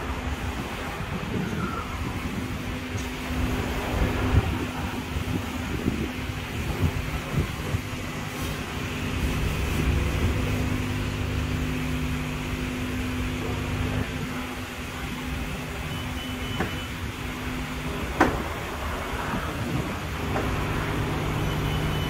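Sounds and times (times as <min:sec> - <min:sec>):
car wash machinery hum: 0:00.0 - 0:22.0
rushing noise: 0:00.0 - 0:22.0
faint high beeps: 0:15.9 - 0:17.0, 0:21.3 - 0:22.0.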